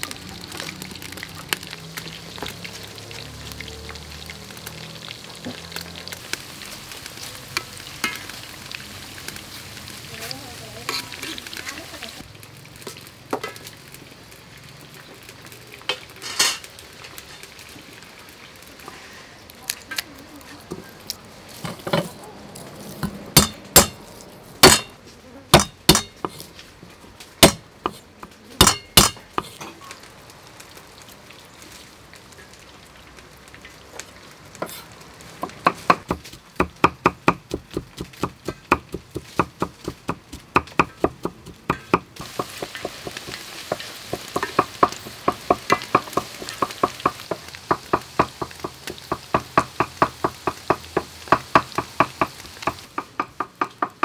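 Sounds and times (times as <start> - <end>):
hot oil sizzling: 0.0 - 54.0
cleaver chopping on wooden block: 24.6 - 24.9, 25.6 - 26.4, 27.4 - 28.0.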